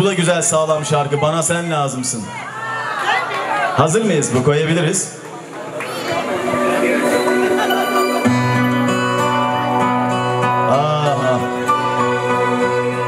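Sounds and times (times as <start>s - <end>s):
band playing sustained chords: 5.9s - 13.0s.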